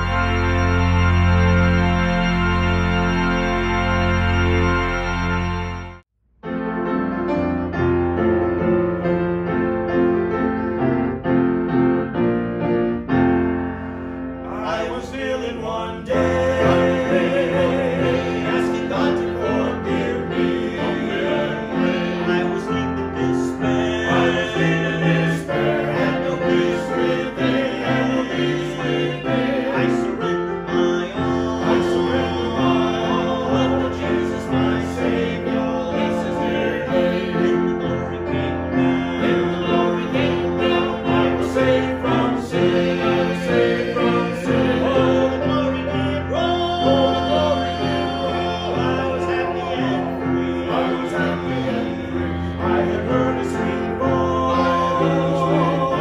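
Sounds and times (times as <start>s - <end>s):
piano playing: 0.0s - 56.0s
person singing with vibrato: 14.4s - 56.0s.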